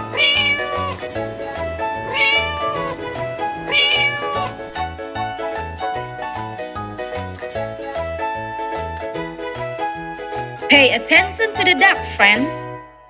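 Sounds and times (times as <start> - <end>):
cat meowing: 0.0 - 4.8.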